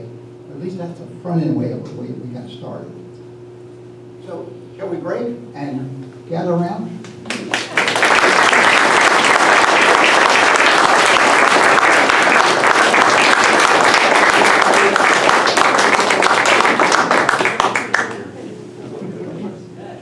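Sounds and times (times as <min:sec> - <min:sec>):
audience applauding: 0:07.3 - 0:18.4.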